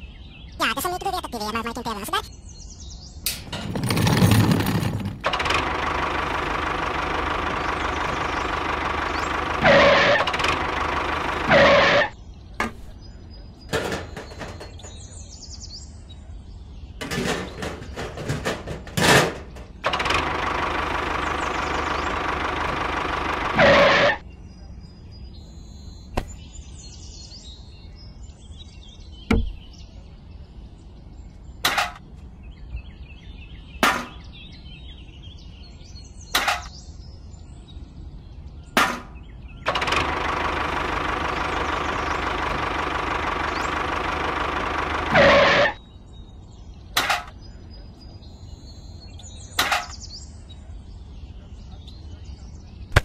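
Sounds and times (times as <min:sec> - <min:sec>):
small motor running: 0:05.3 - 0:12.1, 0:19.9 - 0:24.2, 0:39.7 - 0:45.8
sharp knocks: 0:29.3 - 0:29.7.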